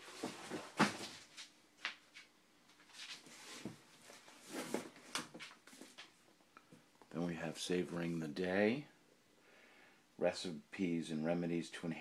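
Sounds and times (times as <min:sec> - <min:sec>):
soft book rustling: 0:00.0 - 0:07.2.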